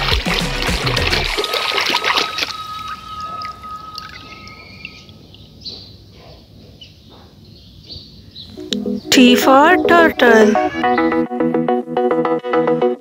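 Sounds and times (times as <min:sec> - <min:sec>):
water splashing in a tub: 0:00.0 - 0:05.3
water dripping and trickling: 0:00.0 - 0:05.6
thin high tone: 0:01.5 - 0:05.6.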